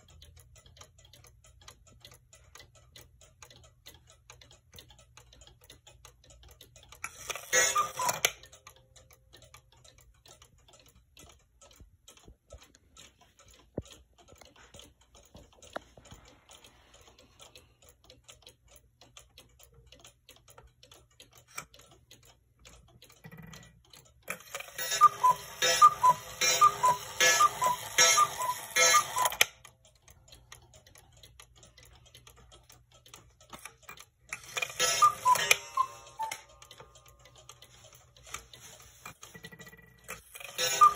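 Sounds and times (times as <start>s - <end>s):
clock ticking: 0.0s - 40.9s
cuckoo clock call: 1.6s - 11.4s, 21.0s - 30.6s, 31.2s - 40.9s.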